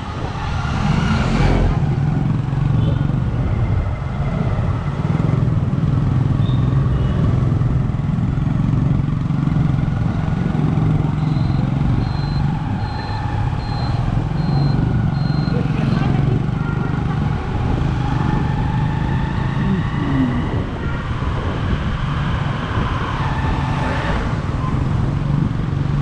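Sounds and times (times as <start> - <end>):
road and wind noise: 0.0 - 26.0
short high-pitched beeps: 11.2 - 16.2.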